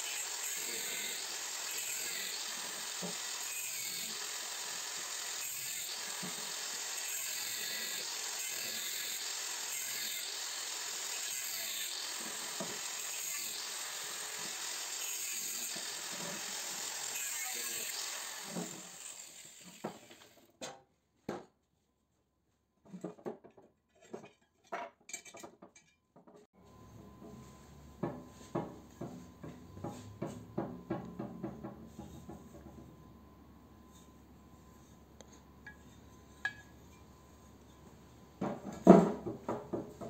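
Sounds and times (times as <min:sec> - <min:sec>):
angle grinder grinding steel: 0:00.0 - 0:20.4.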